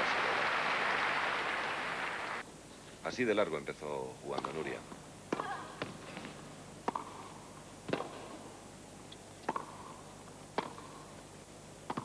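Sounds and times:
tennis ball struck by rackets: 5.3 - 7.3, 7.9 - 8.4, 9.4 - 11.0.

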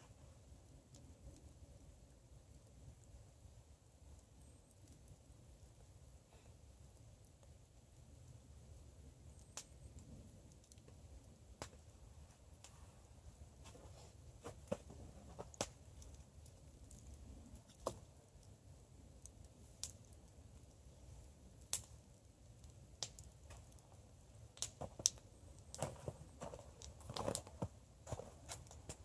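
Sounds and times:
campfire crackling: 0.0 - 29.0
footsteps crunching in snow: 25.8 - 28.7.

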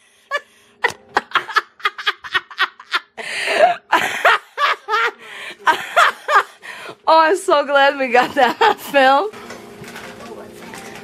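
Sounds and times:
person laughing: 0.3 - 6.6.

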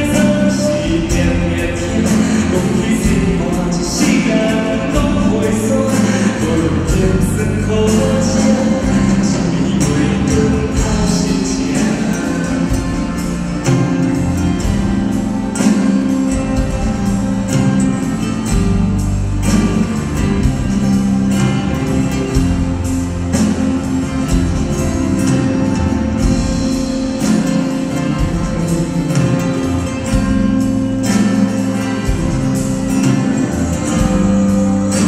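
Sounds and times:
man singing: 0.0 - 13.9
acoustic guitars: 0.0 - 35.0.

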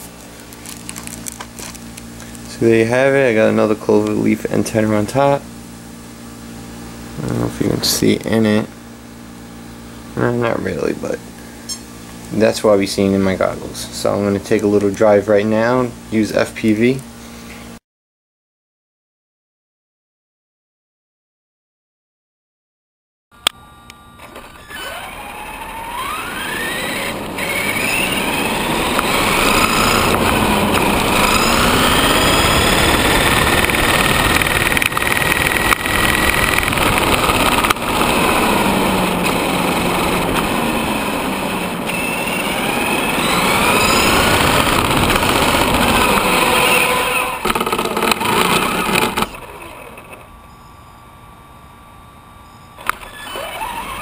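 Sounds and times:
electric motor whining: 24.1 - 50.6, 52.7 - 54.0.

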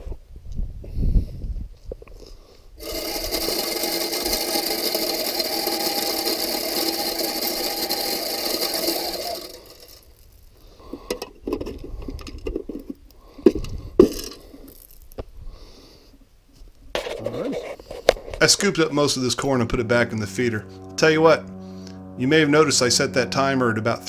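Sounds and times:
feeder motor whirring: 2.8 - 10.5
corn flung out: 2.8 - 10.6.

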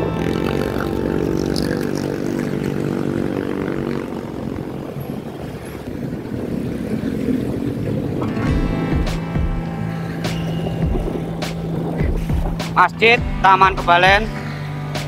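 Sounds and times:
motorcycle engine running: 0.0 - 15.0
road and wind noise: 0.0 - 15.0.

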